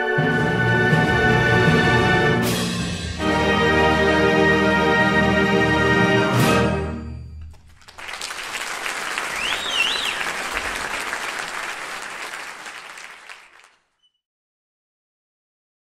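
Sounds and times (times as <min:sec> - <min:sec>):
audience applause: 0:07.5 - 0:13.9
rising-and-falling whistle: 0:09.3 - 0:10.3.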